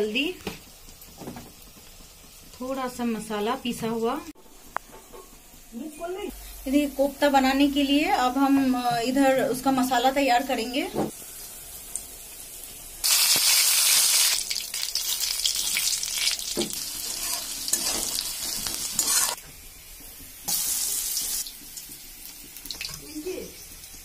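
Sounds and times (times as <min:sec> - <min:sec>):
hot oil sizzling: 0:00.0 - 0:24.0
spatula scraping a pan: 0:16.7 - 0:19.4.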